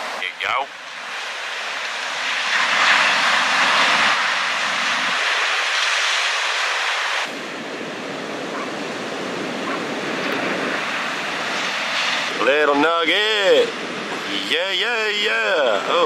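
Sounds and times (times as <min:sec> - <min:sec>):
waves breaking: 0:00.0 - 0:16.0
wind on microphone: 0:02.2 - 0:12.7.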